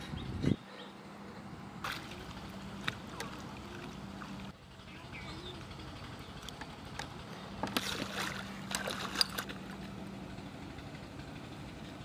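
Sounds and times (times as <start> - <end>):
fish splashing in water: 1.8 - 4.5, 7.6 - 9.9.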